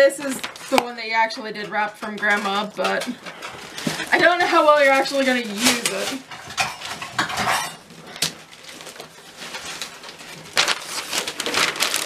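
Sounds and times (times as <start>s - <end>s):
wrapping paper tearing and crumpling: 3.6s - 7.0s, 7.9s - 12.0s.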